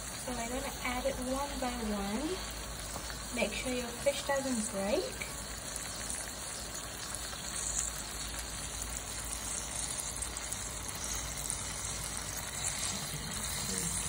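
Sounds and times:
sauce sizzling in a pan: 0:00.0 - 0:14.0.

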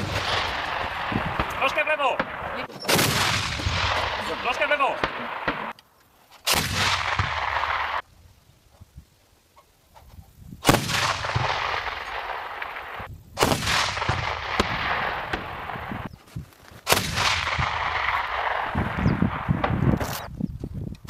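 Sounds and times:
autocannon firing bursts: 0:00.0 - 0:05.7.

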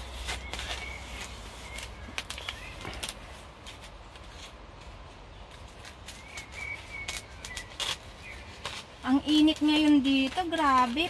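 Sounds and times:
plastic crinkling: 0:00.0 - 0:11.0
scissors snipping plastic: 0:06.2 - 0:11.0.

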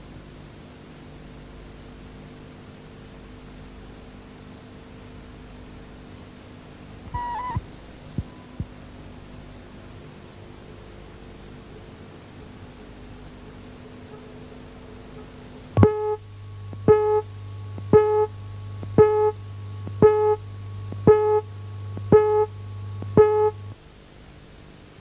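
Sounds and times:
steady low hum: 0:05.2 - 0:10.0, 0:11.4 - 0:23.9
short electronic beeps: 0:07.1 - 0:07.6, 0:15.8 - 0:16.2, 0:16.8 - 0:17.3, 0:17.9 - 0:18.3, 0:18.9 - 0:20.4, 0:21.0 - 0:21.5, 0:22.1 - 0:23.6.

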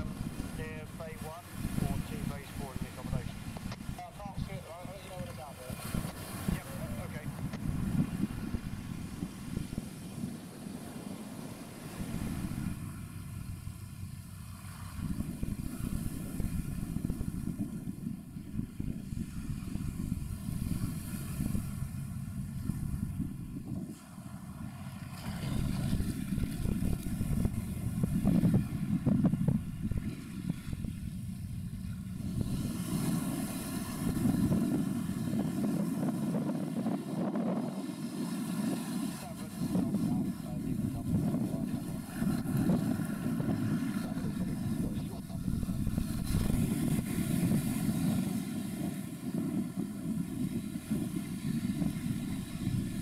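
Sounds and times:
faint distant engine drone: 0:00.0 - 0:53.0
wind buffeting microphone: 0:00.0 - 0:53.0.

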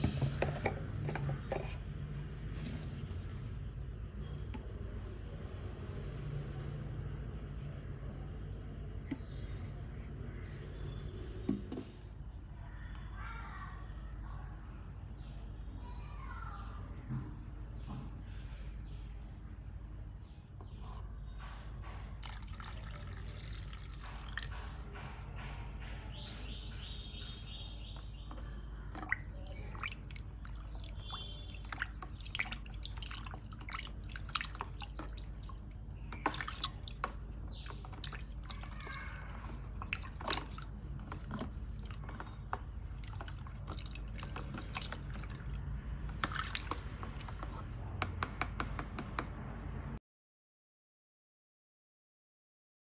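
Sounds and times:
liquid pouring into tub: 0:22.2 - 0:24.5, 0:28.9 - 0:47.7
water sloshing and dripping: 0:22.2 - 0:24.8, 0:28.2 - 0:47.8.

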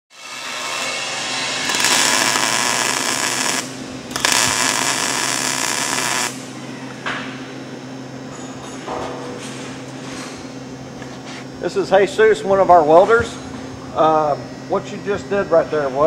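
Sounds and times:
arc welding: 0:00.1 - 0:06.6
low electrical hum: 0:00.2 - 0:16.0.

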